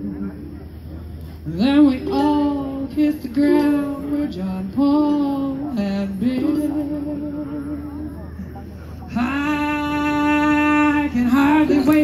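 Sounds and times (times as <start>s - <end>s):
woman singing through a pa: 1.5s - 8.2s, 9.1s - 12.0s.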